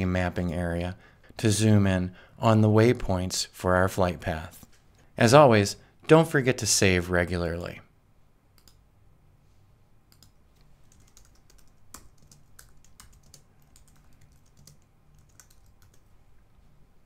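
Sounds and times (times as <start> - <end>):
typing on computer keyboard: 10.1 - 16.1.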